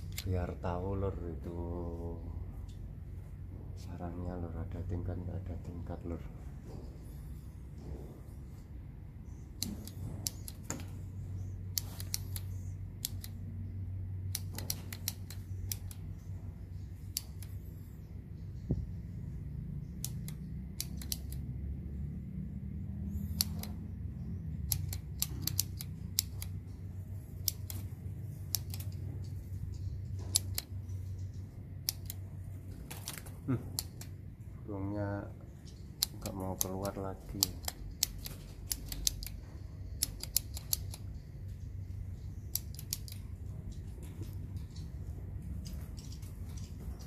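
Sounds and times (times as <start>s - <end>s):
sharp clicks: 0.0s - 0.6s, 9.2s - 21.7s, 23.1s - 34.4s, 35.6s - 47.0s
low steady hum: 0.0s - 47.0s.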